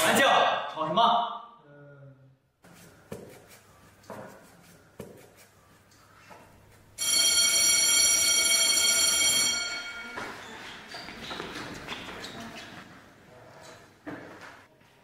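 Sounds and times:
electric school bell ringing: 0:07.0 - 0:10.7.

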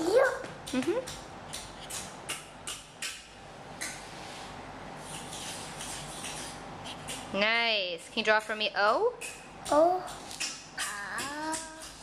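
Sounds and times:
marker squeaking on cardboard: 0:05.0 - 0:07.3.

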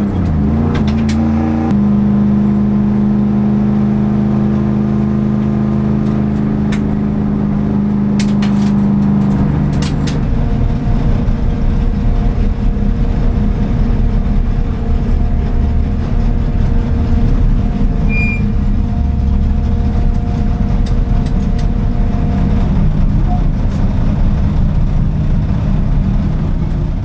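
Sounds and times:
race car engine idling: 0:04.0 - 0:27.0.

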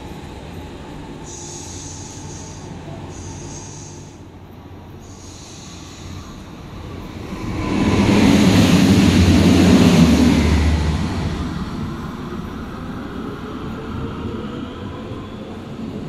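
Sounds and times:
train running past: 0:00.0 - 0:16.0.

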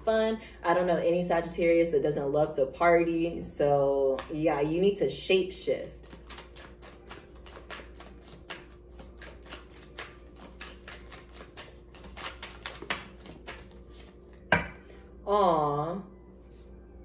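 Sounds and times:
cards being shuffled: 0:04.1 - 0:04.4, 0:06.0 - 0:14.5.

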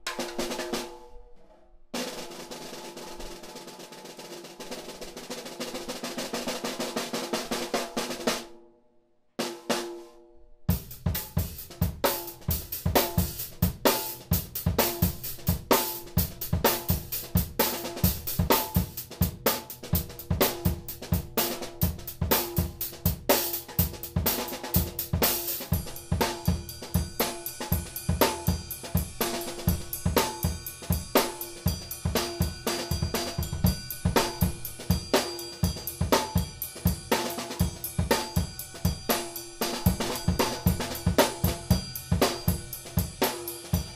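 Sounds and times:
drum kit groove: 0:00.0 - 0:01.1, 0:02.0 - 0:08.5, 0:10.7 - 0:43.9
snare drum playing: 0:19.5 - 0:43.9.

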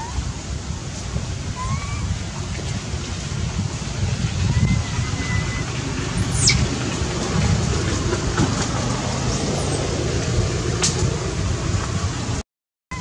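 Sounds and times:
wind buffeting microphone: 0:00.0 - 0:12.4
high squeak sliding downward: 0:01.6 - 0:02.1, 0:04.5 - 0:06.7.

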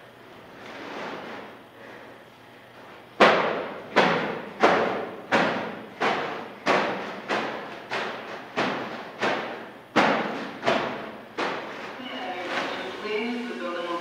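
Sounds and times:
heavy bags thudding on floor: 0:03.2 - 0:12.7.

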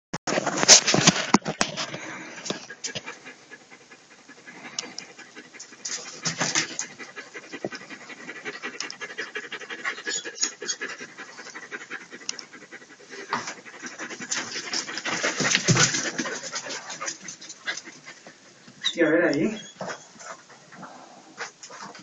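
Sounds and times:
heavy breathing: 0:01.8 - 0:10.1.

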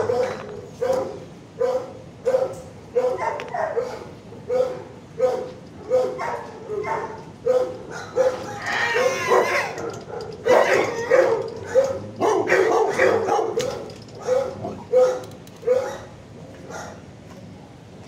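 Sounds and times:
dog's long high call: 0:00.0 - 0:11.9
dogs barking: 0:00.0 - 0:17.1.

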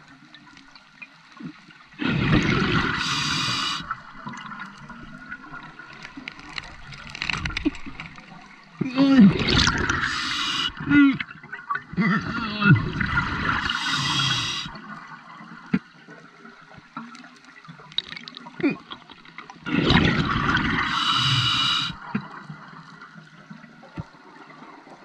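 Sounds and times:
gurgling exhaled bubbles: 0:01.4 - 0:15.2, 0:17.9 - 0:22.7
scuba regulator hissing inhalations: 0:02.8 - 0:03.9, 0:10.0 - 0:10.8, 0:13.6 - 0:14.8, 0:20.8 - 0:22.0.

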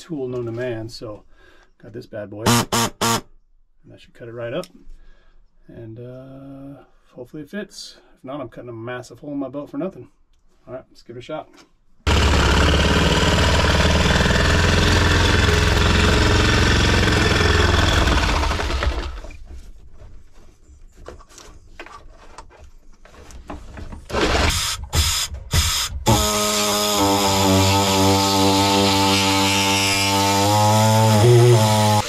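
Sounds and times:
electric power saw cutting: 0:02.5 - 0:03.2, 0:12.1 - 0:19.4, 0:24.1 - 0:32.0.

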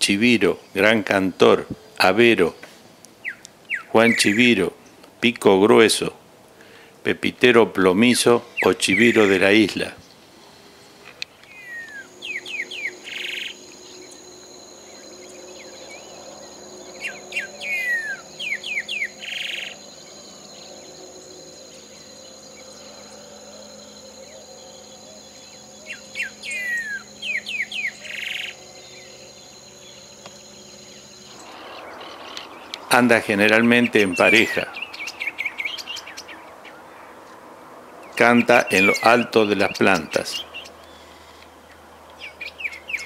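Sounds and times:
bird singing whistles and buzz: 0:03.2 - 0:04.5, 0:11.4 - 0:36.8, 0:38.0 - 0:43.0
high insect drone: 0:08.5 - 0:43.0.

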